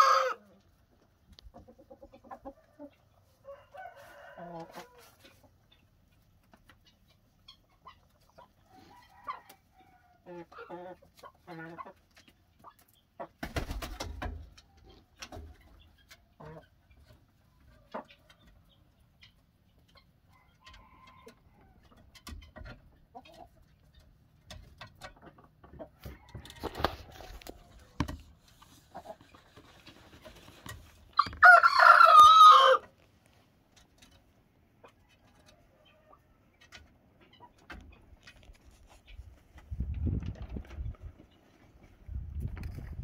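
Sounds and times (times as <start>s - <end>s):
rooster crowing: 0.0s - 0.4s, 3.4s - 5.0s, 31.2s - 32.8s
chicken clucking: 0.0s - 43.0s.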